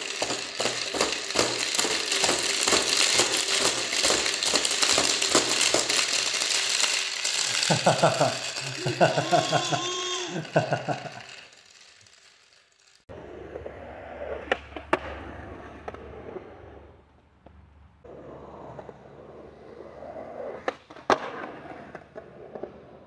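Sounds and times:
wheels clacking over joints: 0.0 - 13.1
small wheels rolling on concrete: 0.0 - 23.0.

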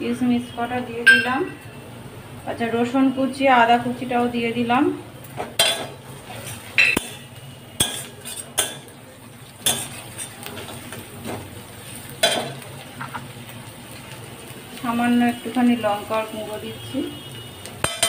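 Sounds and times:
metal spatula scraping a pan: 5.6 - 8.8, 9.6 - 10.9.

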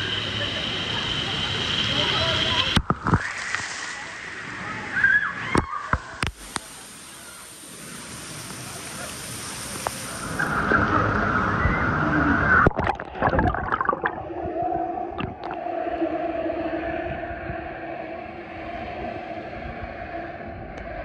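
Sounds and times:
muffled underwater hum: 12.3 - 21.0.

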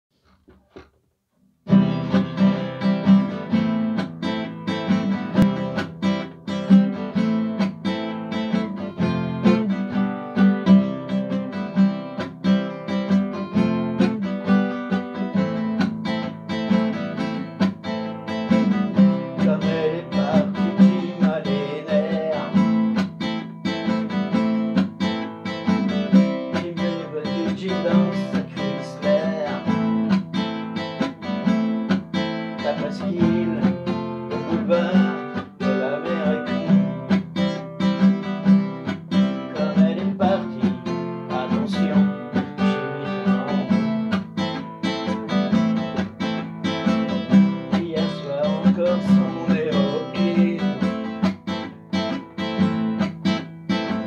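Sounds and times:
classical guitar strumming: 1.6 - 54.0.

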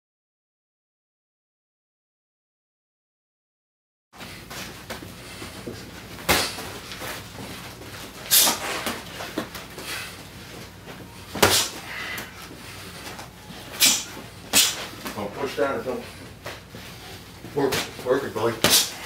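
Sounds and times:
boxing gloves punching: 4.4 - 9.8, 11.3 - 12.3, 13.0 - 15.1, 18.6 - 19.0.

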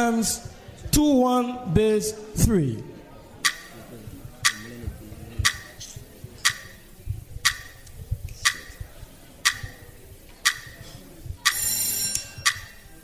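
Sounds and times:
countdown clock ticking: 3.4 - 4.8, 5.4 - 5.8, 6.4 - 6.8, 7.4 - 8.8, 9.4 - 9.8, 10.4 - 10.8, 11.4 - 11.6, 12.4 - 12.8
bright ringing tone: 11.5 - 12.8.

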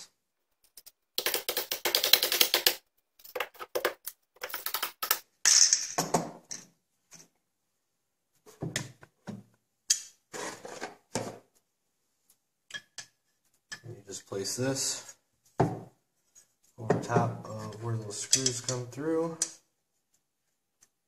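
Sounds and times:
scrape: 10.3 - 10.9.

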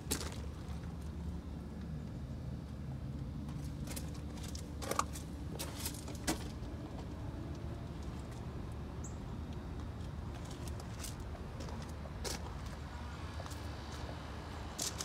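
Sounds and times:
footsteps crunching on gravel: 3.5 - 7.1, 9.8 - 12.8, 13.4 - 15.0.

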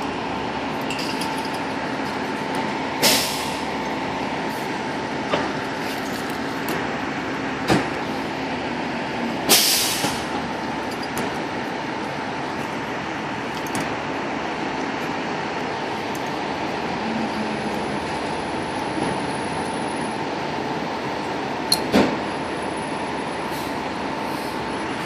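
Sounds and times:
diesel engine idling: 0.0 - 25.0
air release hisses: 9.5 - 10.2.

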